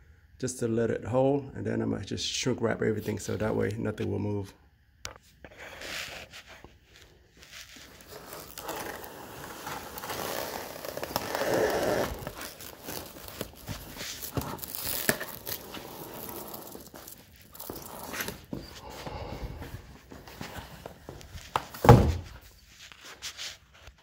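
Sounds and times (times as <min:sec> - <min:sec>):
plastic shrink wrap crinkling: 0:06.9 - 0:18.8.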